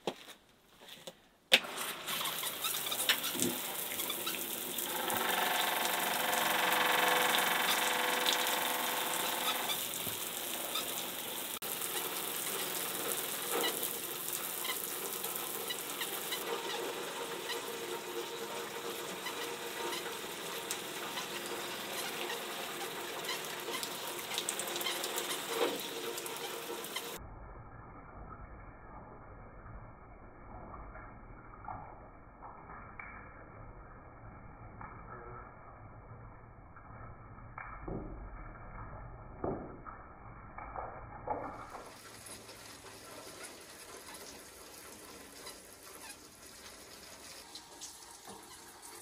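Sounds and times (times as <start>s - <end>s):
shower head spraying water: 1.6s - 27.2s.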